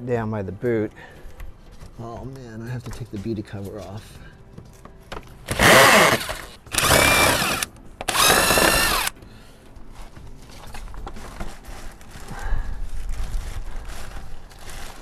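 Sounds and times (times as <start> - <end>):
cordless drill motor whine: 5.5 - 9.2.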